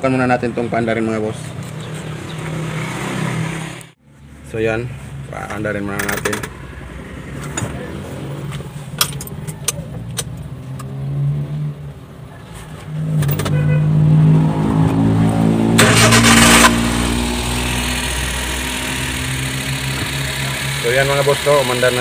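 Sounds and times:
car engine starting and idling: 0:14.4 - 0:22.0.

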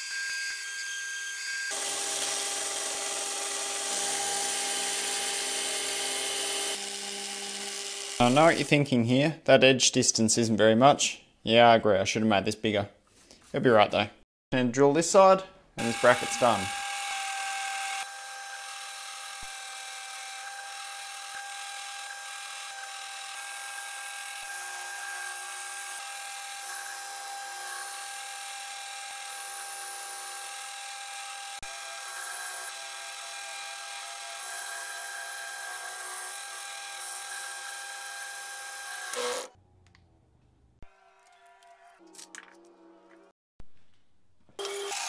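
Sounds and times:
drill cutting steel: 0:00.0 - 0:08.7, 0:15.8 - 0:39.5, 0:44.6 - 0:45.0.

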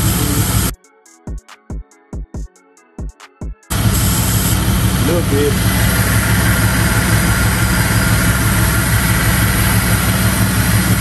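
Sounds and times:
car engine idling: 0:00.0 - 0:00.7, 0:03.7 - 0:11.0.

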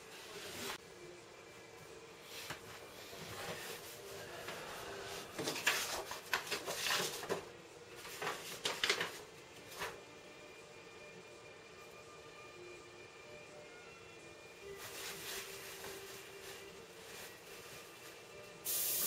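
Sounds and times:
paper rustling: 0:05.3 - 0:10.0.

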